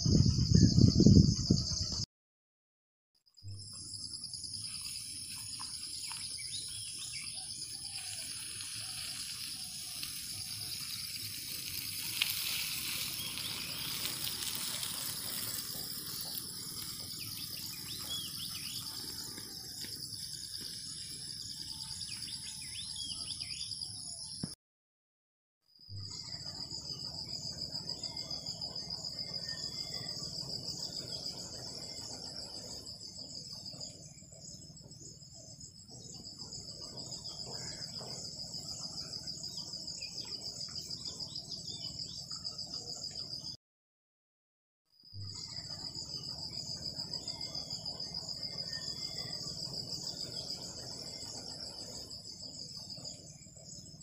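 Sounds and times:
bird chirps: 0:00.0 - 0:02.0, 0:13.0 - 0:24.6
insects trilling: 0:00.0 - 0:02.1, 0:03.4 - 0:24.6, 0:25.8 - 0:43.6, 0:45.0 - 0:54.0.

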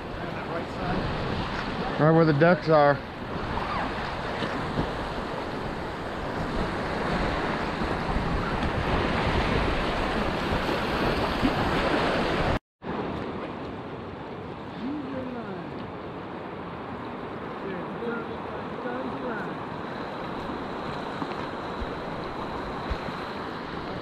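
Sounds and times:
wind buffeting microphone: 0:00.0 - 0:13.2, 0:19.4 - 0:24.0
river current rushing and splashing: 0:00.0 - 0:24.0.

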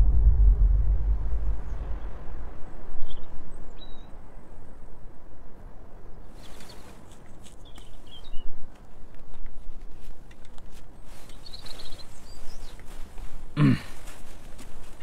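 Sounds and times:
steady low rumble: 0:00.0 - 0:04.7
bird chirps: 0:01.4 - 0:04.4, 0:07.5 - 0:08.5, 0:11.0 - 0:13.0.

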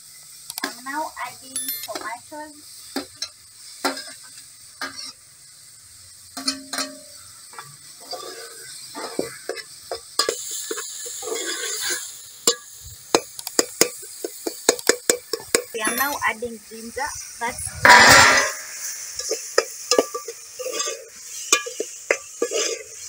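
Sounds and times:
faint sizzle from pot: 0:00.0 - 0:23.0
metal clinks: 0:01.6 - 0:02.1, 0:14.8 - 0:16.4
metal spoon scraping metal plate: 0:11.1 - 0:12.1, 0:17.7 - 0:23.0.

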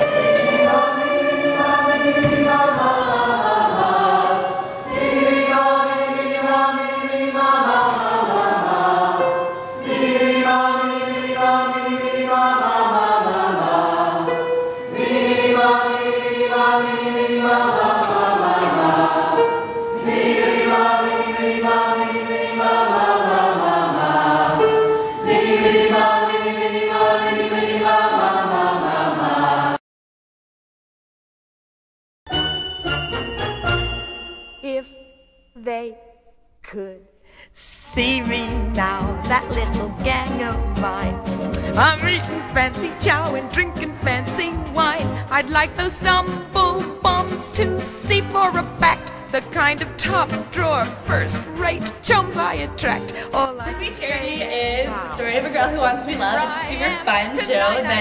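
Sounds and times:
music with long held notes: 0:38.0 - 0:58.0.

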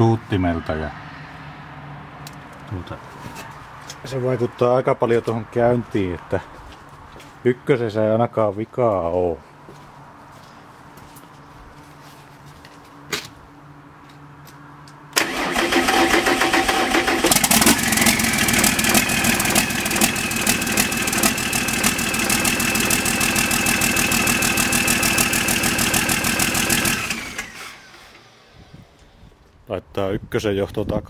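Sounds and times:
engine starter cranking: 0:15.2 - 0:29.0
diesel engine running with whine: 0:15.2 - 0:29.3.

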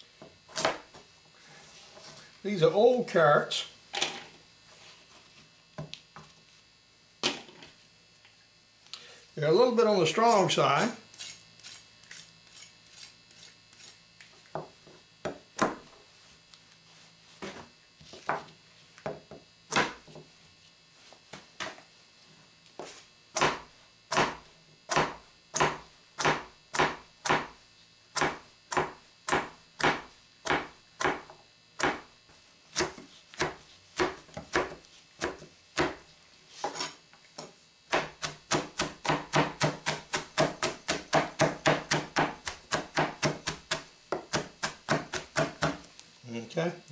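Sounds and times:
knife chopping carrots: 0:32.7 - 0:36.0, 0:37.9 - 0:45.9.

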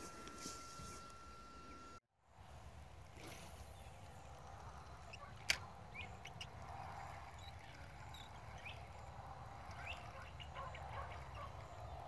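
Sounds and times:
birds chirping: 0:03.3 - 0:12.0.

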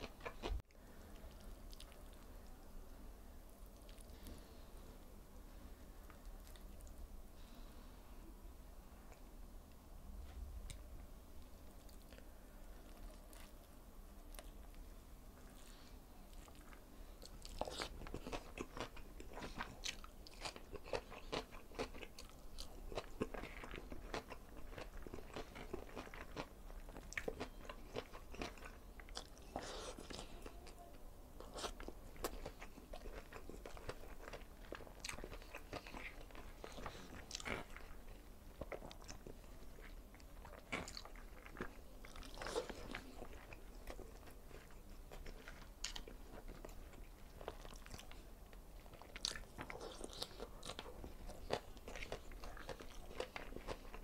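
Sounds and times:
close chewing with wet mouth smacks: 0:16.3 - 0:30.5, 0:31.4 - 0:54.0.

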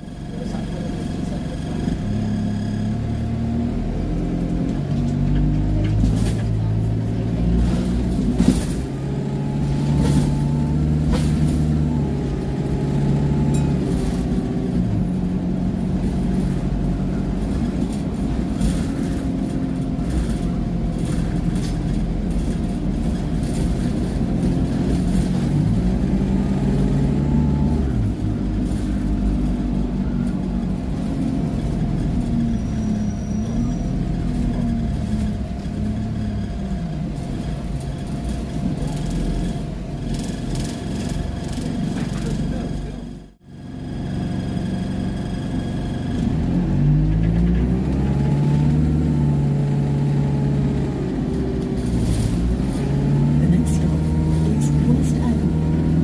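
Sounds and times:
bus diesel engine pulling: 0:00.0 - 0:56.0.

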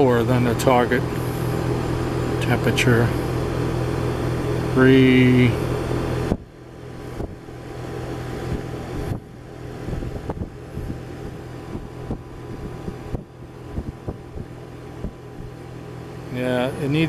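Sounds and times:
heat pump humming: 0:00.0 - 0:17.0
microphone handling knocks: 0:07.2 - 0:07.4, 0:09.9 - 0:15.2.

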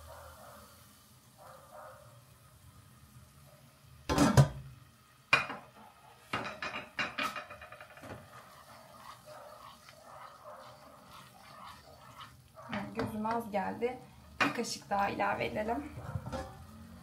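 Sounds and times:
knock on cooking pot: 0:04.1 - 0:04.6
wooden spoon stirring in pot: 0:06.2 - 0:17.0.

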